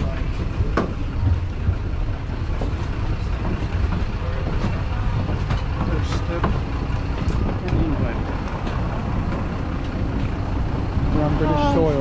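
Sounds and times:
moving vehicle rumble: 0:00.0 - 0:12.0.

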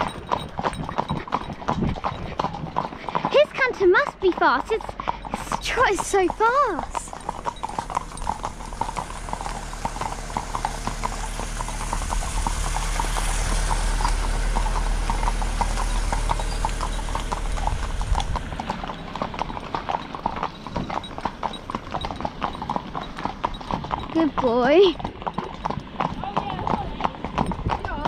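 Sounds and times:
car passing slowly: 0:00.0 - 0:28.0
horse hooves clip-clopping on tarmac: 0:00.0 - 0:28.0.

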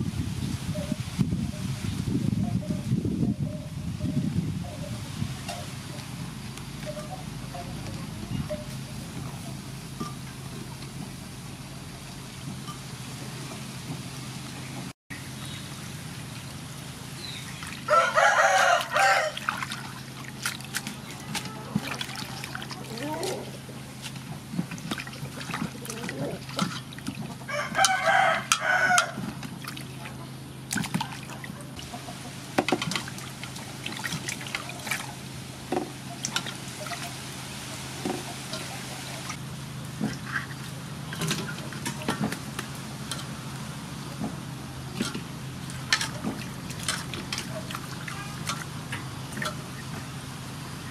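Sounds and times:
water splashing in metal basin: 0:17.3 - 0:39.4, 0:44.8 - 0:50.0
rooster crowing: 0:17.9 - 0:19.5, 0:27.4 - 0:29.2.

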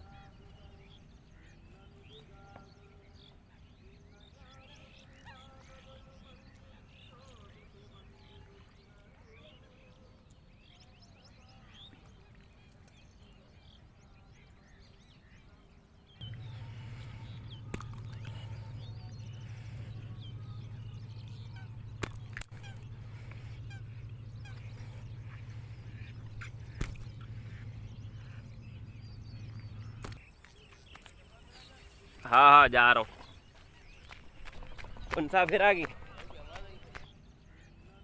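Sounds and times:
faint bird chirps: 0:00.0 - 0:38.0
steady low hum: 0:16.2 - 0:30.6.

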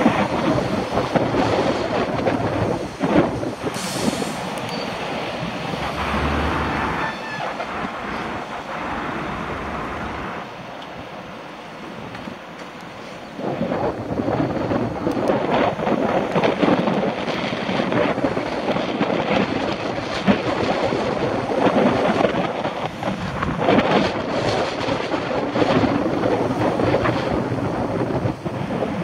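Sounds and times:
road and traffic noise: 0:00.0 - 0:29.0
wind buffeting microphone: 0:00.0 - 0:29.0.

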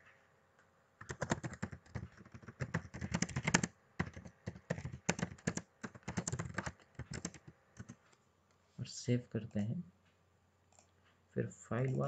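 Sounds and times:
typing on computer keyboard: 0:01.0 - 0:08.0.

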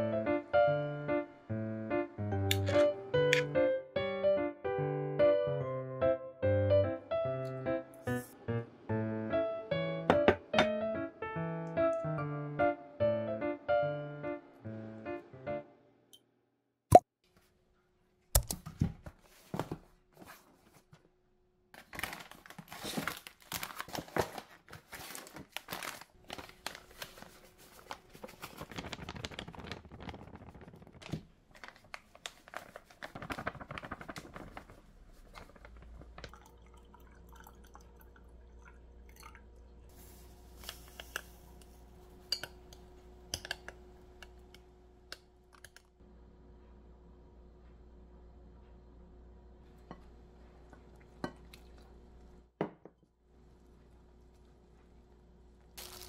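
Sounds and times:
plastic packets crinkling and tearing: 0:21.8 - 0:36.3, 0:55.8 - 0:56.0
dry mix pouring into glass bowl: 0:55.8 - 0:56.0.

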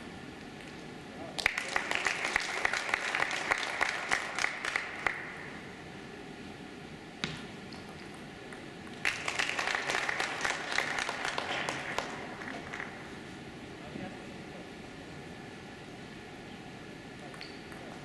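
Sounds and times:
audience applauding: 0:01.4 - 0:05.3, 0:09.0 - 0:13.0.

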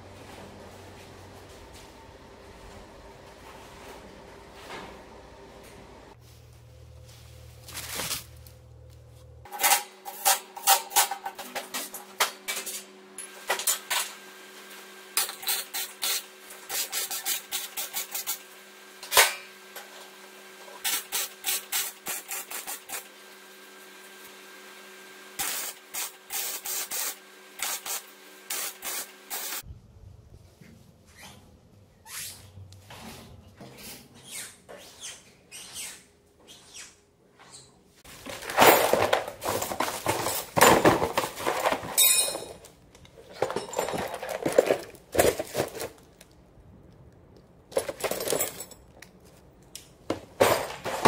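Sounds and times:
steady hum: 0:00.0 - 0:09.5
arc welding crackling: 0:25.4 - 0:29.6.

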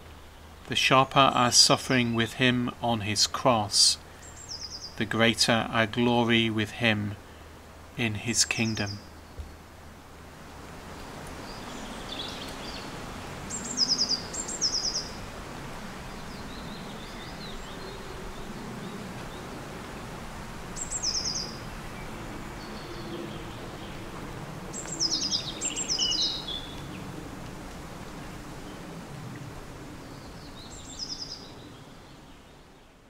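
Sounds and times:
outdoor background hiss: 0:00.0 - 0:33.0
songbird calling: 0:04.1 - 0:06.6, 0:08.0 - 0:09.6, 0:11.4 - 0:15.2, 0:16.1 - 0:19.5, 0:20.7 - 0:24.1, 0:24.7 - 0:27.0, 0:30.0 - 0:32.6.

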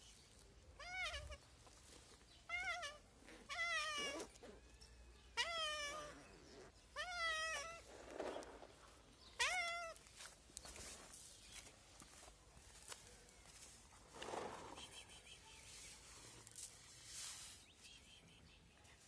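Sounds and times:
cat meowing: 0:02.5 - 0:04.4, 0:05.3 - 0:06.2.

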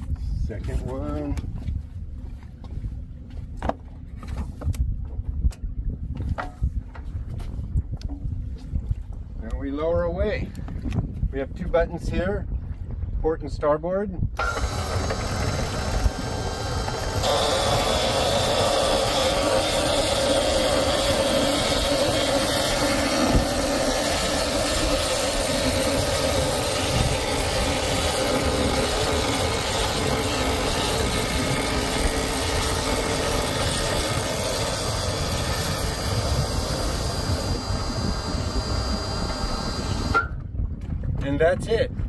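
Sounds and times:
electric winches humming: 0:14.4 - 0:40.4.

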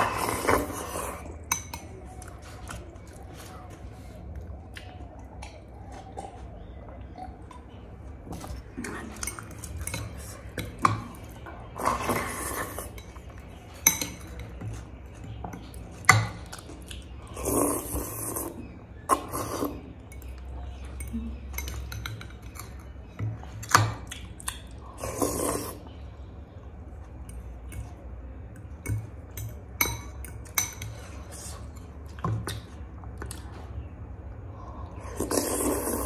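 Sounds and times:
slurping noodles: 0:17.4 - 0:19.8, 0:35.0 - 0:36.0.

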